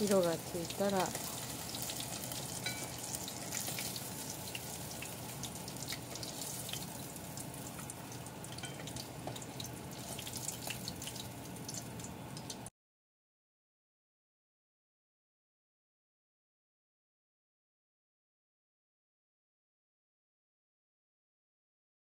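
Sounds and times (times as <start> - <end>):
oil sizzling in a frying pot: 0.0 - 12.7.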